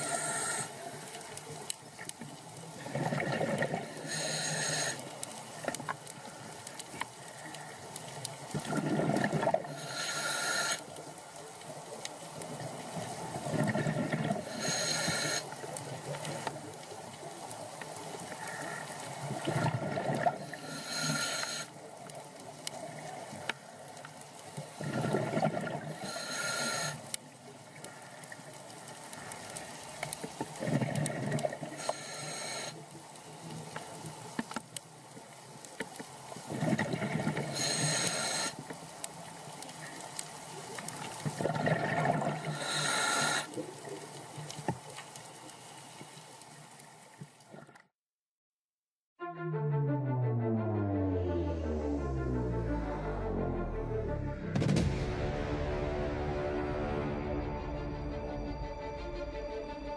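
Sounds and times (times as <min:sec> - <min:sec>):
regulator hissing inhale: 0:00.0 - 0:01.0, 0:03.8 - 0:05.2, 0:09.7 - 0:10.9, 0:14.4 - 0:15.6, 0:18.4 - 0:19.8, 0:20.4 - 0:21.8, 0:25.9 - 0:27.2, 0:31.7 - 0:32.8, 0:37.4 - 0:38.7, 0:42.4 - 0:43.6
exhaled bubbles gurgling: 0:02.7 - 0:05.0, 0:08.5 - 0:10.0, 0:12.6 - 0:16.0, 0:18.2 - 0:21.7, 0:24.7 - 0:27.0, 0:30.5 - 0:32.3, 0:36.4 - 0:38.5, 0:40.9 - 0:44.2.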